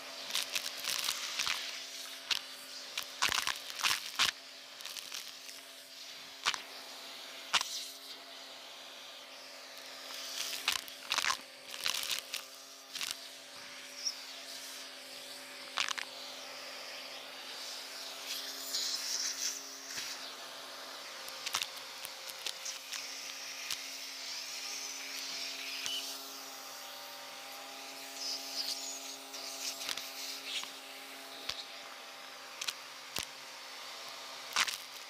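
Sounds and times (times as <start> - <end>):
vacuum cleaner humming: 0.0 - 35.0
small objects clicking in nozzle: 0.2 - 5.7, 6.4 - 6.7, 7.5 - 7.9, 9.8 - 13.2, 15.7 - 16.1, 21.2 - 26.2, 28.2 - 30.8, 32.5 - 33.4, 34.5 - 35.0.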